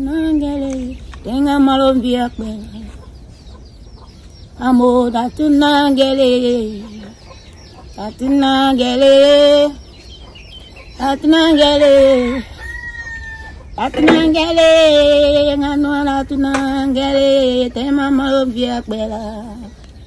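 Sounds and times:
rooster crowing: 11.4s - 14.5s.

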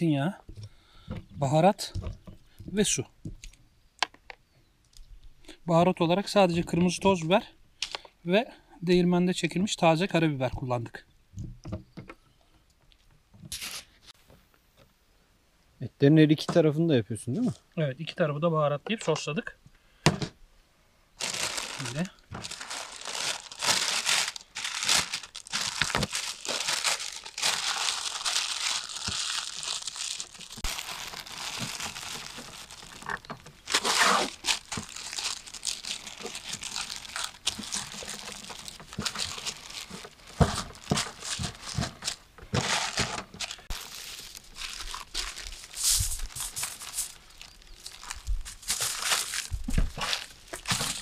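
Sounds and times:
paper ripping: 21.2s - 47.2s
wrapping paper crinkling and tearing: 21.2s - 51.0s.

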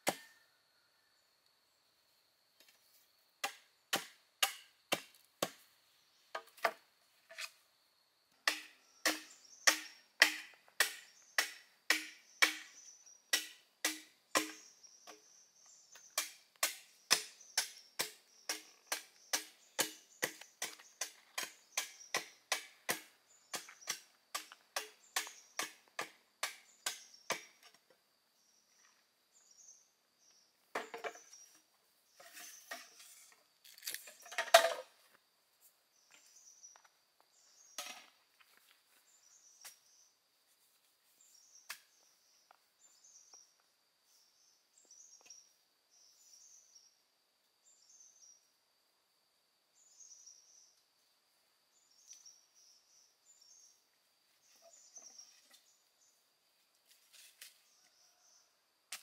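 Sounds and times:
blade chopping bamboo: 3.4s - 5.6s, 8.5s - 12.7s, 13.3s - 14.7s, 16.2s - 27.6s.

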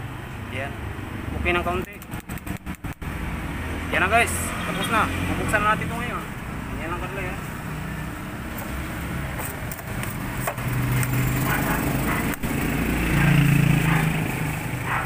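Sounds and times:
small engine running: 11.0s - 15.0s.

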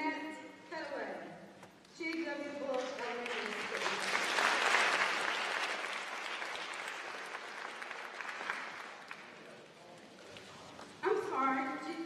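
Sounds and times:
audience applauding: 2.9s - 9.6s.

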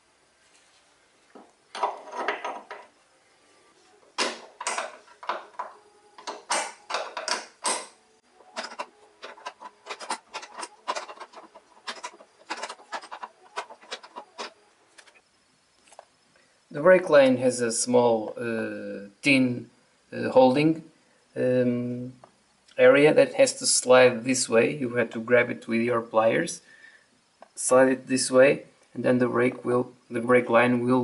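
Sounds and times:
spanners clinking on metal: 1.7s - 2.9s, 4.2s - 15.2s.

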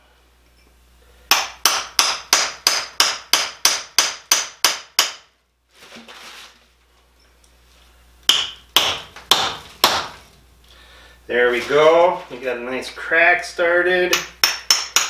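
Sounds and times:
hammer striking chisel on rock: 1.3s - 5.2s, 8.3s - 10.2s, 14.1s - 15.0s.

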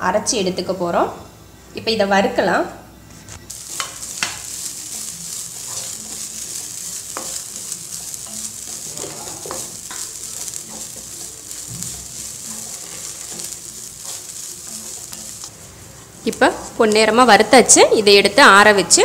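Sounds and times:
steady sizzling hiss: 0.0s - 19.0s
wooden spatula scraping pan: 3.5s - 16.9s.

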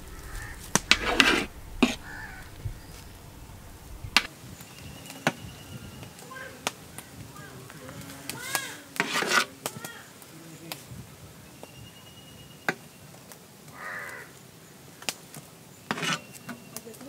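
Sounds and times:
birds cawing: 0.0s - 8.9s, 13.7s - 15.0s.

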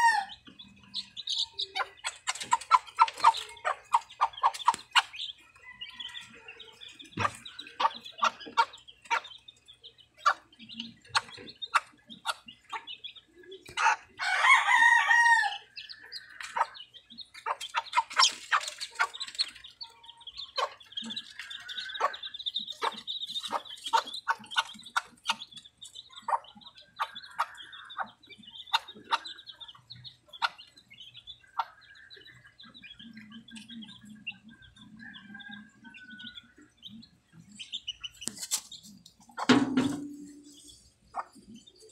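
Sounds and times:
rooster crowing: 0.0s - 0.3s, 14.2s - 15.7s
chicks peeping: 0.0s - 41.9s
hen clucking: 0.0s - 41.9s.

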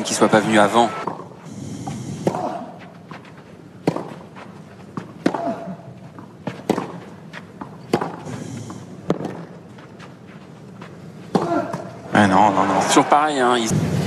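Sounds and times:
racquets hitting tennis ball: 1.0s - 12.2s.

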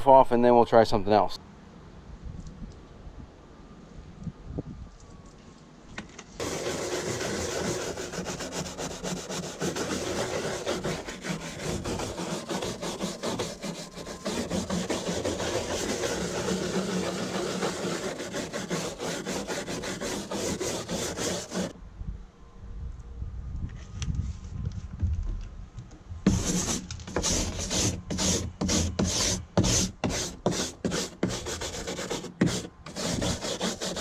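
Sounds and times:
scrubbing strokes: 6.4s - 21.7s, 26.3s - 34.0s.

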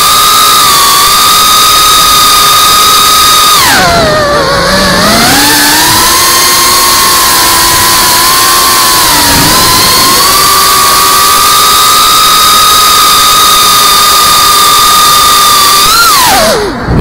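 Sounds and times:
quadcopter motors whining: 0.0s - 17.0s
wind noise: 3.6s - 12.9s, 13.6s - 17.0s.

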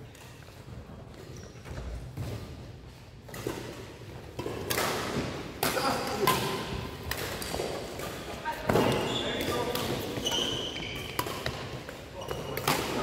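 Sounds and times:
rackets hitting shuttlecock: 3.2s - 13.0s.

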